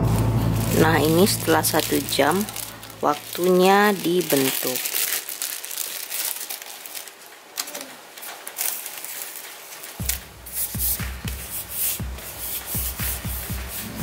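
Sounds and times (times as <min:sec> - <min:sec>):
music with thumping beat: 0:10.0 - 0:14.0.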